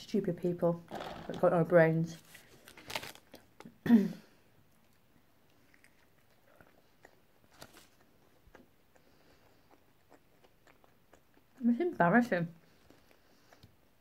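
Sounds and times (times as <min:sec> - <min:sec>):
person chewing food: 0:04.5 - 0:11.7, 0:12.6 - 0:14.0.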